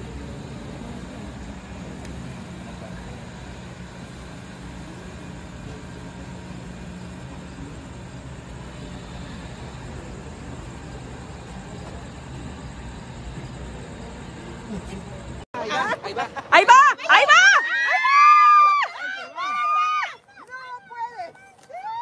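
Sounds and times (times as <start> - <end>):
train engine humming: 0.0 - 15.5.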